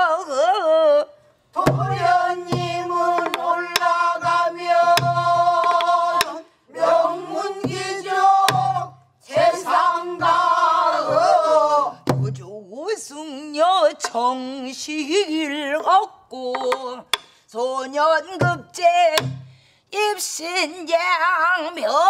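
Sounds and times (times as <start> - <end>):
voices singing together: 1.5 - 12.2
barrel drum knocks and thuds: 1.7 - 6.3, 7.6 - 10.4, 12.0 - 12.4, 18.4 - 18.6, 19.2 - 19.5.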